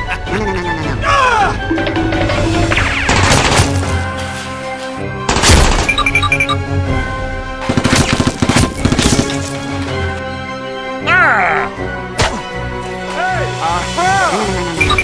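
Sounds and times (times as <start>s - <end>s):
action background music: 0.0s - 15.0s
gunshots: 2.7s - 4.0s, 7.6s - 9.4s.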